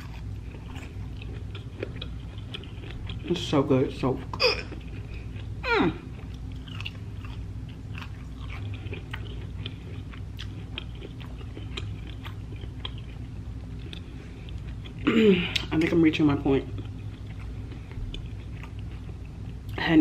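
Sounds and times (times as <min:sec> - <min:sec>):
chewing with wet clicks: 0:00.0 - 0:03.5, 0:04.2 - 0:19.8
person humming mmm: 0:05.6 - 0:06.1.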